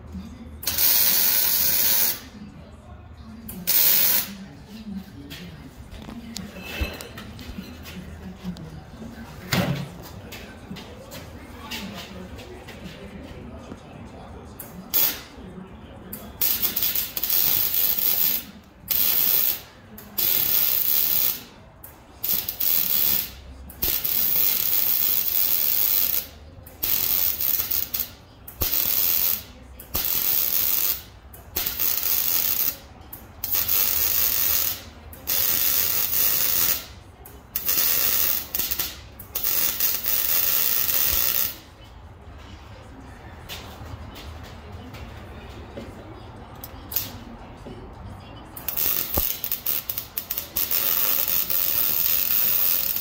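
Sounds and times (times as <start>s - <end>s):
welder crackling: 0.6s - 2.3s, 3.7s - 4.3s, 14.9s - 15.3s, 16.1s - 21.5s, 22.2s - 41.6s, 46.9s - 47.2s, 48.6s - 53.0s.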